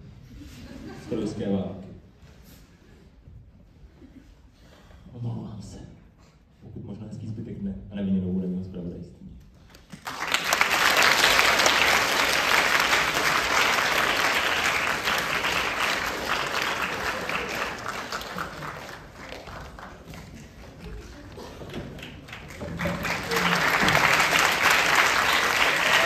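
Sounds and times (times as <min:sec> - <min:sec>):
audience applauding: 0:09.8 - 0:26.0.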